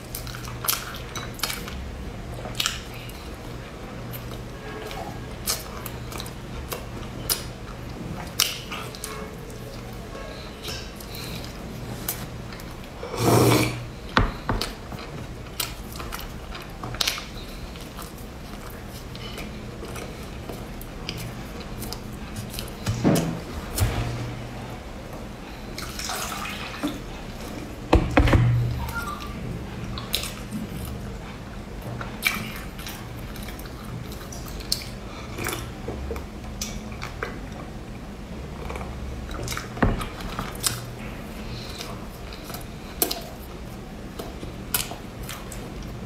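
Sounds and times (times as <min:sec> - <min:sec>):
chewing: 0:00.0 - 0:13.2, 0:14.0 - 0:23.6, 0:28.7 - 0:37.7, 0:38.5 - 0:46.0
slurping liquid: 0:13.0 - 0:13.8.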